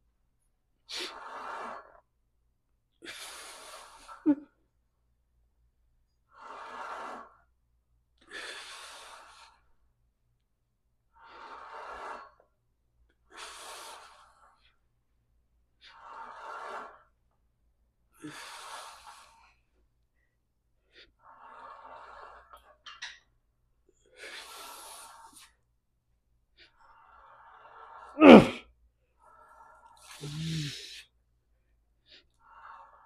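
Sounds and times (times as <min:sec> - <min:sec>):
man breathing hard: 0:27.0 - 0:28.6, 0:29.5 - 0:31.1.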